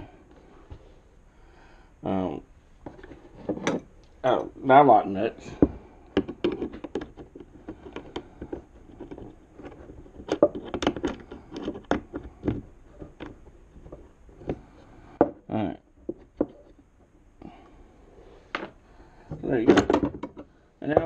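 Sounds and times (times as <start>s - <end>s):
knocks and clicks on wooden workbench: 19.7s - 21.0s.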